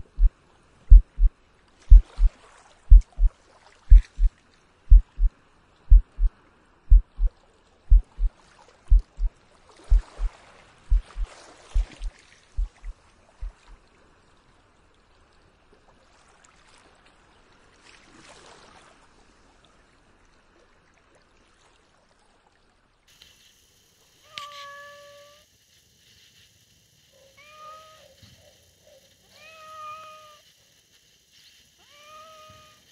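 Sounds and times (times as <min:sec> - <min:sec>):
heartbeat-like low thumps: 0:00.0 - 0:00.3, 0:00.9 - 0:01.3, 0:01.9 - 0:02.3, 0:02.9 - 0:03.3, 0:03.9 - 0:04.3, 0:04.9 - 0:05.3, 0:05.9 - 0:06.3, 0:06.9 - 0:07.3, 0:07.9 - 0:08.3, 0:08.9 - 0:09.3, 0:09.9 - 0:10.3, 0:10.9 - 0:13.7
steady hiss: 0:23.1 - 0:32.9
cat meowing: 0:24.3 - 0:25.4, 0:27.4 - 0:28.2, 0:29.3 - 0:30.4, 0:31.8 - 0:32.8.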